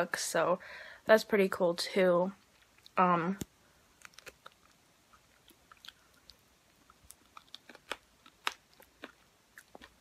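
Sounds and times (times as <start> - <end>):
person chewing with mouth clicks: 2.4 - 10.0.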